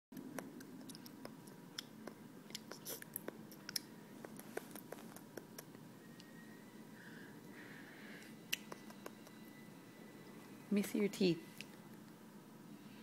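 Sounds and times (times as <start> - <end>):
child chewing with lip smacks: 0.2 - 5.8, 8.2 - 9.4.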